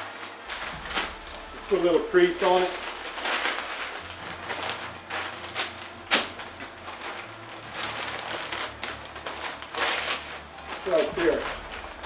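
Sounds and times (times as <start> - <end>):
paper rustling and crinkling: 0.0 - 12.0.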